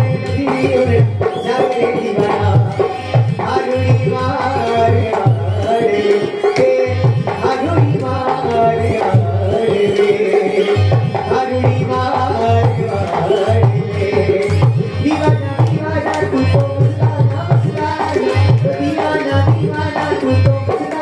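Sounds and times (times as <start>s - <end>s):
quick hand-drum beat: 11.0s - 21.0s.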